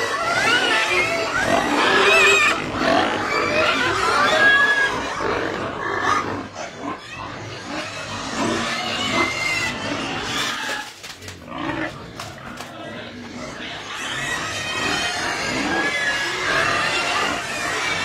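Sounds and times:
piglets squealing: 0:00.0 - 0:18.0.

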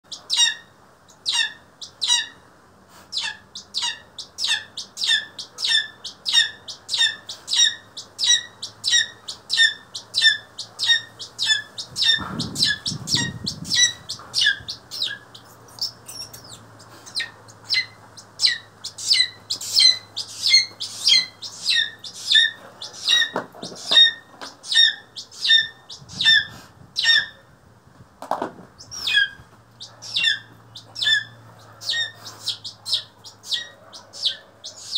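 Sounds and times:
bird of prey squawking: 0:03.1 - 0:27.4, 0:28.8 - 0:34.9.

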